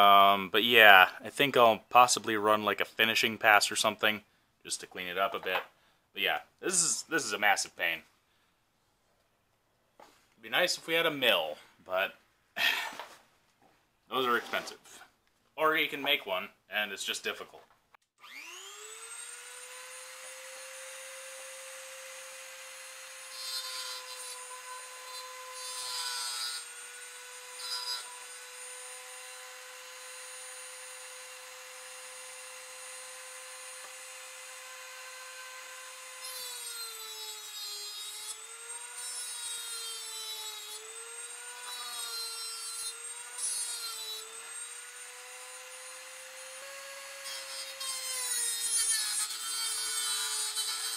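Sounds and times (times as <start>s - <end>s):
rotary tool whining: 18.2s - 50.9s.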